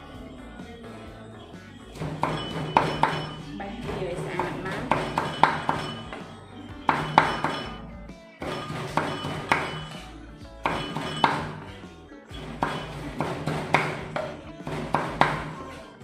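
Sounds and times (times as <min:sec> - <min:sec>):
background music: 0:00.0 - 0:16.0
cleaver chopping on wooden board: 0:06.9 - 0:07.6, 0:10.6 - 0:11.6, 0:12.6 - 0:15.6.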